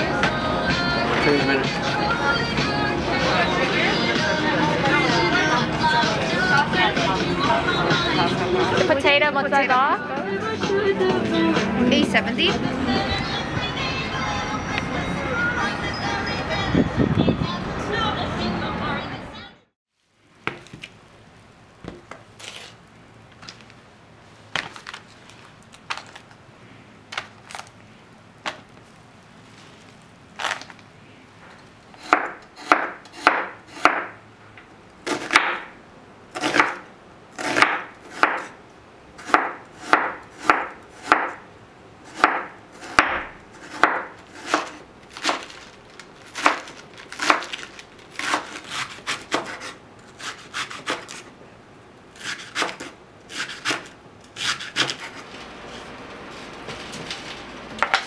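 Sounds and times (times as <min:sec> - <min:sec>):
knife chopping on wooden board: 0:32.0 - 0:34.1, 0:35.1 - 0:35.7, 0:37.4 - 0:38.5, 0:39.2 - 0:41.4, 0:42.1 - 0:45.4, 0:48.2 - 0:51.1, 0:52.2 - 0:53.8, 0:54.4 - 0:55.2.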